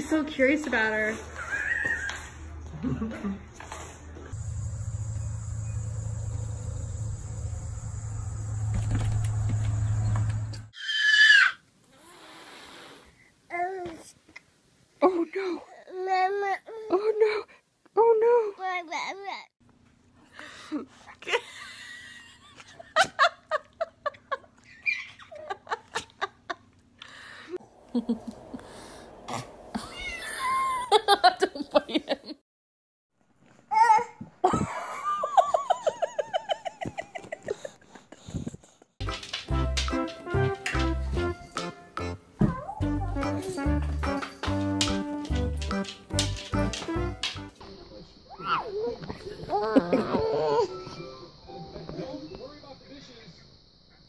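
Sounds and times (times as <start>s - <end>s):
steady low hum: 4.2s - 10.7s, 27.0s - 30.9s
insects trilling: 4.4s - 10.5s.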